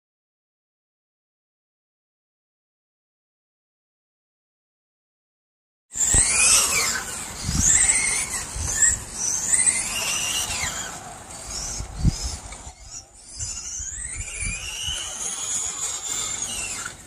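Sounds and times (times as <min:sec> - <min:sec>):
electric toy car motor whining: 0:06.0 - 0:17.0.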